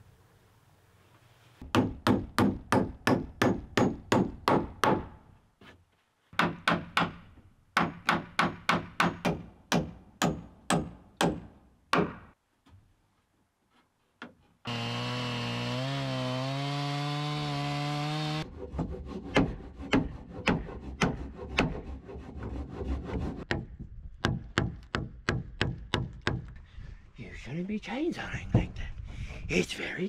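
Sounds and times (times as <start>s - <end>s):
hammer striking wood: 1.6s - 5.2s, 6.4s - 12.3s, 23.5s - 26.5s.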